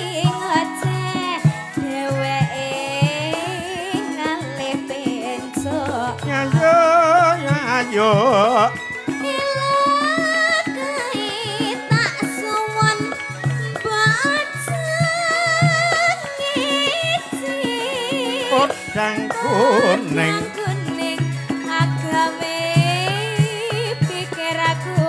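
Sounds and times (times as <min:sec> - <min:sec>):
woman singing into a microphone: 0:00.0 - 0:07.7, 0:08.7 - 0:25.0
live band with steady drum beat: 0:00.0 - 0:25.0.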